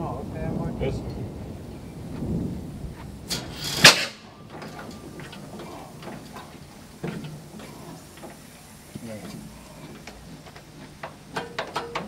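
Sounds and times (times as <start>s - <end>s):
loud sharp noise: 3.2s - 5.3s
metallic clicks and knocks: 10.0s - 12.0s.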